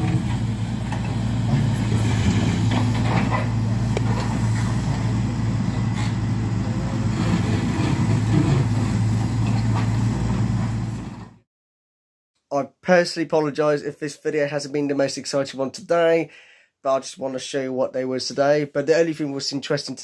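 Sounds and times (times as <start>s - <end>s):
excavator diesel engine running: 0.0s - 11.4s.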